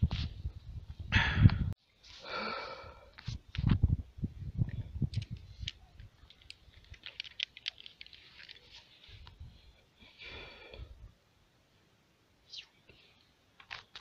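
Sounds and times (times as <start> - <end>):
metal climbing gear clicking: 5.1 - 8.7.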